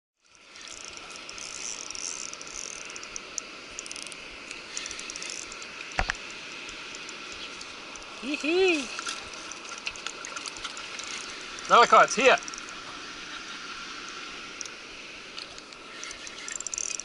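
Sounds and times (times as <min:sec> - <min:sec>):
fishing reel clicking: 0:00.2 - 0:06.1, 0:12.4 - 0:12.8, 0:15.5 - 0:17.0
steady hiss: 0:00.2 - 0:17.0.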